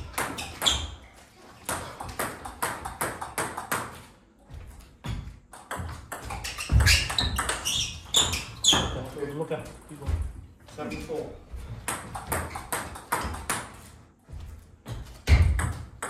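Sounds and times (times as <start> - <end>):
ball bouncing on table: 5.0 - 9.0, 11.8 - 13.8, 15.2 - 16.0.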